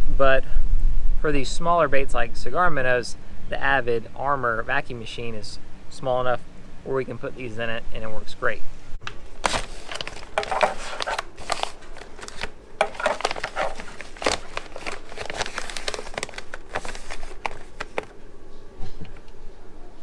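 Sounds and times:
plastic bag crinkling: 0:09.3 - 0:18.2.

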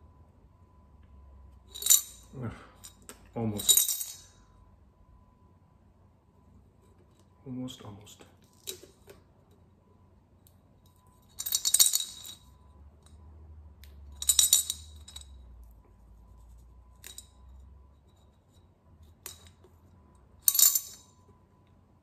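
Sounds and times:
coins rattling in a ceramic bank: 0:01.7 - 0:04.5, 0:10.9 - 0:12.7, 0:14.0 - 0:15.6, 0:20.4 - 0:21.3.

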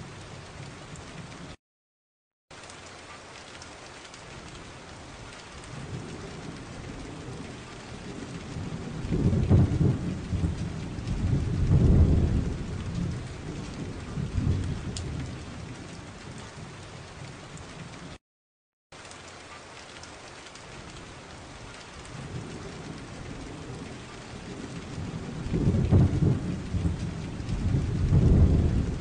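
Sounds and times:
thunder rumbling: 0:04.4 - 0:18.2, 0:20.8 - 0:29.0.

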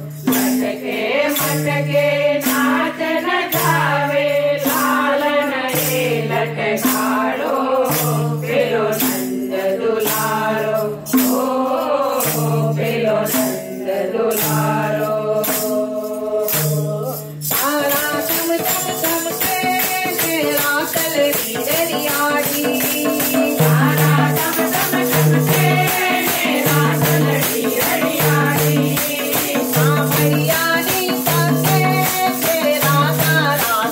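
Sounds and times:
women singing in unison: 0:00.2 - 0:33.9
tabla: 0:17.5 - 0:33.9.

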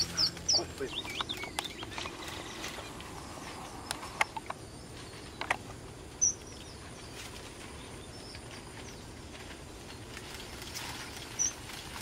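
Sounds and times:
finch chirps: 0:00.0 - 0:04.4, 0:06.2 - 0:07.1
steady outdoor hiss: 0:00.0 - 0:12.0.

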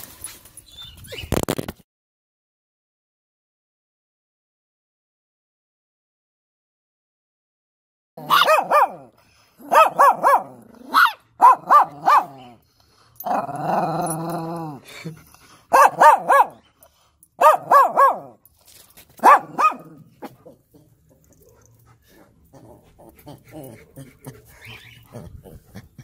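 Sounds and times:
small dogs yapping: 0:08.2 - 0:12.6, 0:15.7 - 0:16.6, 0:17.4 - 0:18.4, 0:19.2 - 0:21.7
dog growl-like cry: 0:13.3 - 0:14.9, 0:22.5 - 0:25.8.

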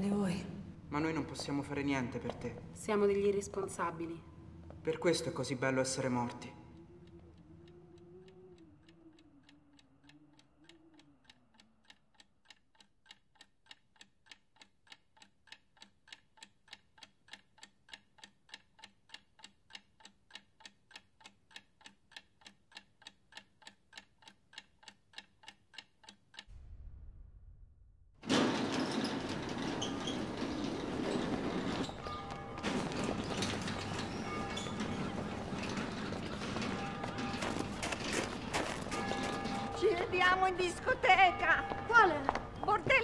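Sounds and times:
clock ticking faintly: 0:00.6 - 0:27.0
low rumble: 0:26.5 - 0:28.3.

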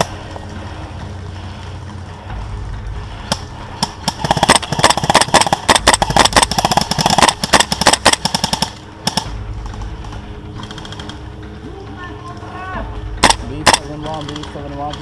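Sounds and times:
airsoft rifles firing bursts: 0:03.3 - 0:11.2, 0:13.2 - 0:15.0
airsoft single shots: 0:13.2 - 0:13.9.

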